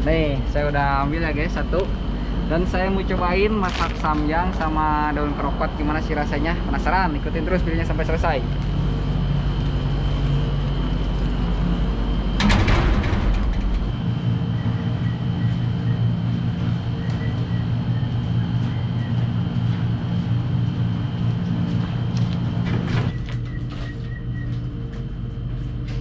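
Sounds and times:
mechanical hum: 0.0 - 26.0
noisy clatter: 6.3 - 26.0.

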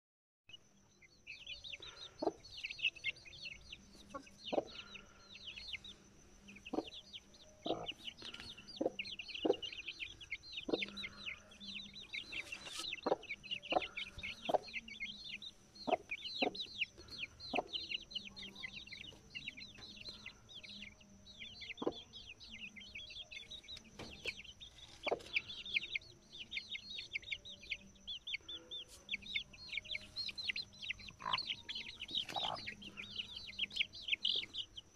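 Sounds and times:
chicks peeping: 0.7 - 34.9
hen clucking: 4.0 - 4.9, 7.6 - 15.0, 15.8 - 17.9, 24.0 - 25.5, 28.8 - 34.5.

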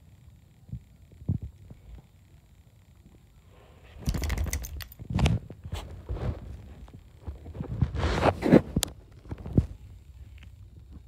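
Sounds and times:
camera rubbing against dog fur: 3.9 - 9.8.

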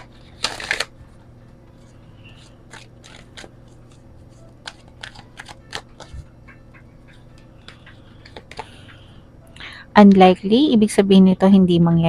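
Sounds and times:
cards being shuffled: 0.0 - 1.2, 1.8 - 6.3, 7.6 - 8.8.

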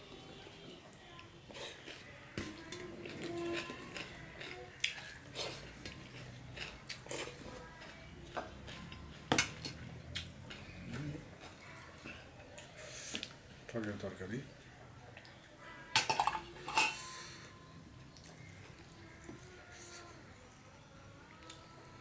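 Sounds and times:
mouth sounds of eating: 0.2 - 13.6.

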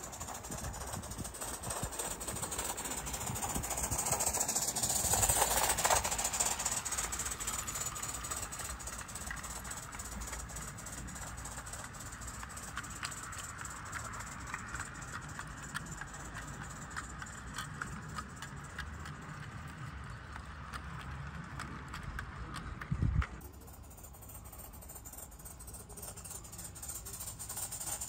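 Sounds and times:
hissing steam: 0.0 - 17.4
model steam locomotive running: 0.0 - 28.0
quick exhaust beats: 0.0 - 28.0.

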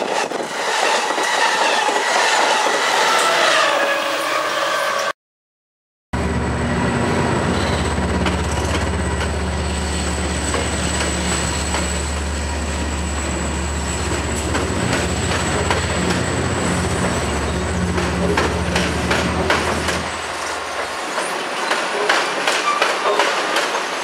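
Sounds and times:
diesel engine drone: 6.2 - 20.9
train wheels clicking on rail joints: 7.5 - 24.0.

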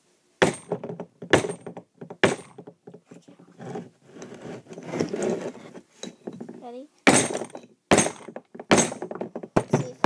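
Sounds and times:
scraping and rubbing: 3.1 - 6.8
hammer cracking rock: 7.1 - 10.0.

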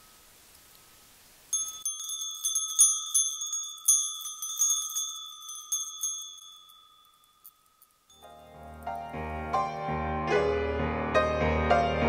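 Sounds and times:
hand bells ringing: 1.5 - 8.5.

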